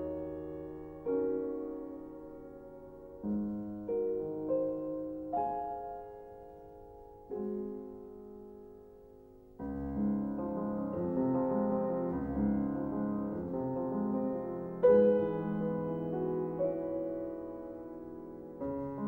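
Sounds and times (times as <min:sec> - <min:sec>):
slow piano music: 0:00.0 - 0:19.0.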